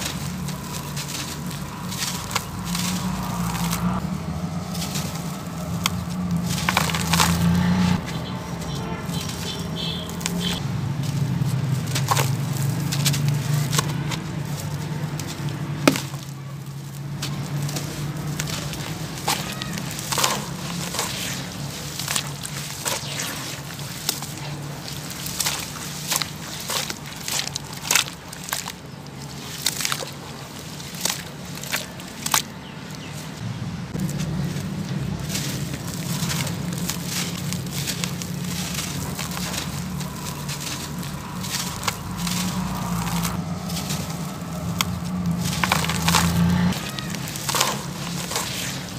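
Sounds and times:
sharp crack: 0.0s - 32.6s, 33.9s - 48.9s
hands squeezing wet cement mix: 0.0s - 33.4s, 34.0s - 48.9s
gritty crumbling crunches: 0.0s - 48.9s.

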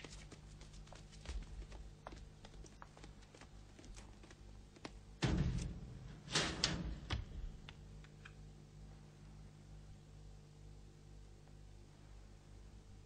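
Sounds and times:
wooden door slamming: 5.2s - 7.6s.

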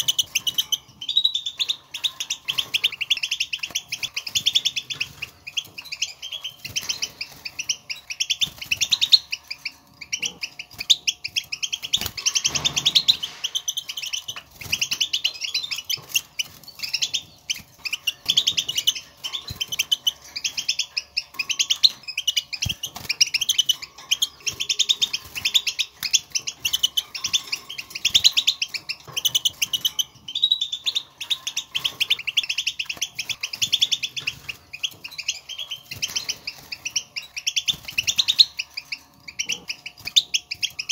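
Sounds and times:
goldfinches twittering: 0.0s - 40.9s.

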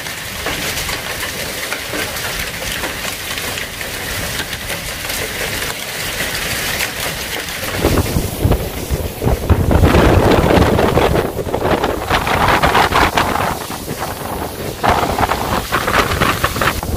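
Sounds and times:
heavy rain falling: 0.0s - 16.9s
wind gusts buffeting microphone: 6.4s - 16.9s.

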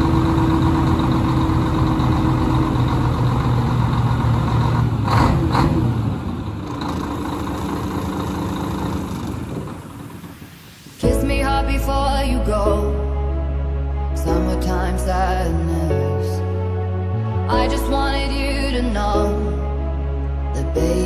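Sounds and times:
diesel truck engine idling: 0.0s - 10.8s.

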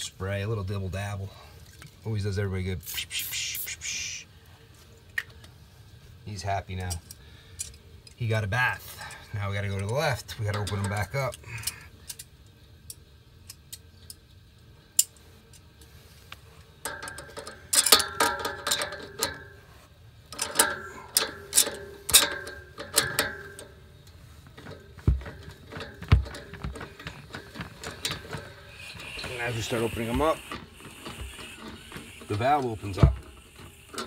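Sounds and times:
pliers clicking and scraping on metal valve: 9.8s - 12.3s, 16.8s - 19.5s, 20.3s - 24.7s.

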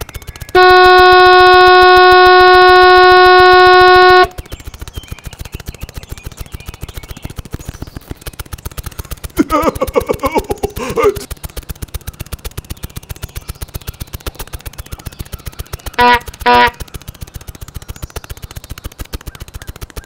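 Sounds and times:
rapid mechanical clatter: 0.0s - 20.0s
truck air horn blast: 0.6s - 4.4s, 16.0s - 16.8s
person exclaiming: 9.4s - 11.3s.

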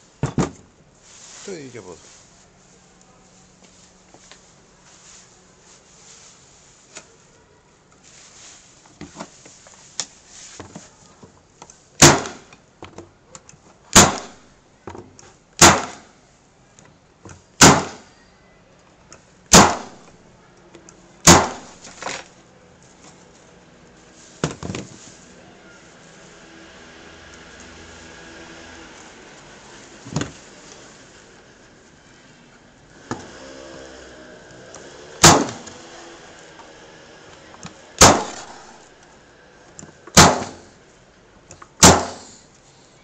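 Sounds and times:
staple gun firing into wood: 12.0s - 12.5s, 13.9s - 14.3s, 15.6s - 16.1s, 17.6s - 18.0s, 19.5s - 19.9s, 35.2s - 35.7s, 38.0s - 38.5s, 40.2s - 40.6s, 41.8s - 42.2s.

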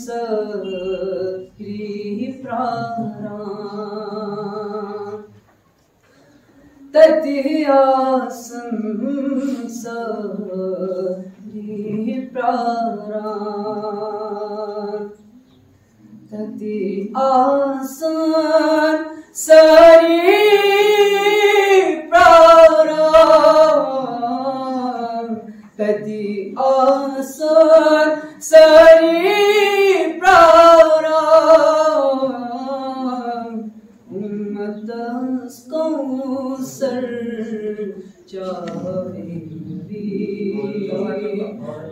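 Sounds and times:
man singing unaccompanied: 0.0s - 5.2s, 6.9s - 15.2s, 16.3s - 41.9s.

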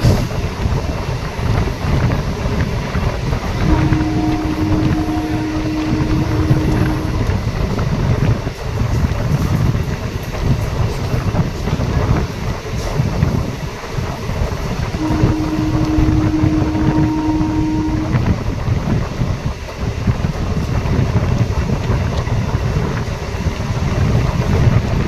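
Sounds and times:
train wheels rumbling on rails: 0.0s - 25.0s
long steady tone: 3.6s - 7.9s, 14.9s - 18.8s.

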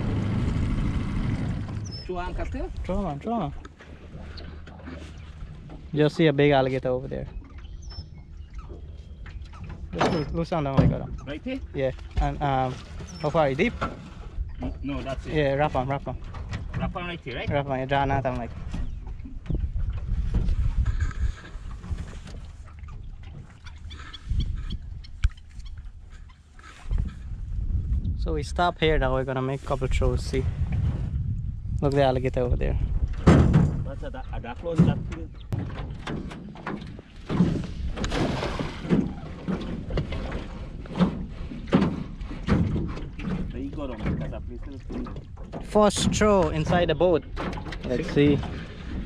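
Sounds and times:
waves slapping against boat hull: 0.0s - 28.2s, 29.0s - 49.0s
wind gusting on microphone: 13.3s - 36.2s.

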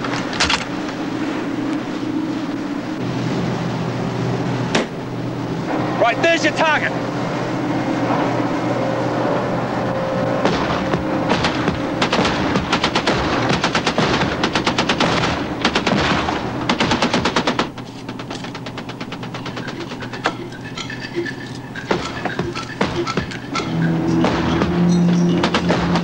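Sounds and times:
boat engine drone: 0.0s - 26.0s
deck gun firing bursts: 11.3s - 19.5s.

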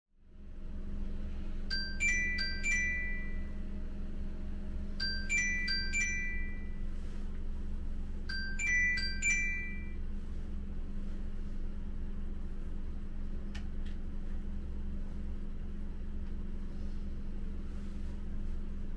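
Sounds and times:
steady low hum: 0.2s - 18.9s
phone alarm chiming melody: 1.7s - 3.6s, 5.0s - 6.9s, 8.3s - 10.0s.

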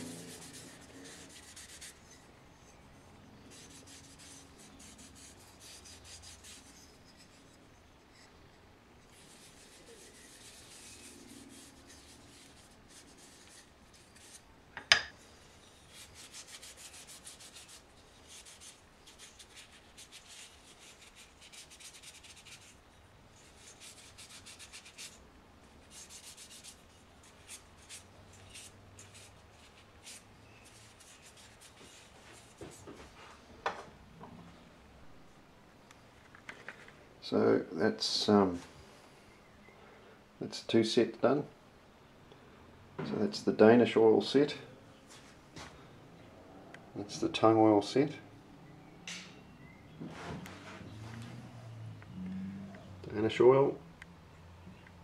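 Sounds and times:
scratchy rubbing strokes on wood: 0.0s - 8.4s, 9.0s - 14.5s, 15.4s - 25.2s, 25.8s - 33.2s.

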